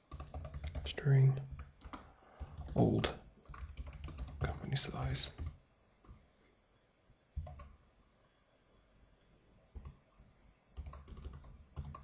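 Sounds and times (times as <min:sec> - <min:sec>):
faint keyboard keystrokes: 0:07.4 - 0:07.8, 0:09.8 - 0:12.0.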